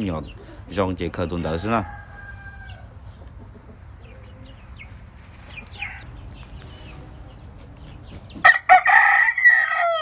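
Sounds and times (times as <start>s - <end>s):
chickens clucking: 0.0s - 8.8s.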